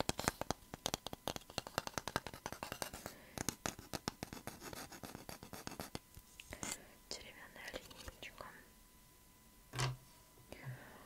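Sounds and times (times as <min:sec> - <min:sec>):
fingers scratching wooden ruler: 0:00.0 - 0:06.0.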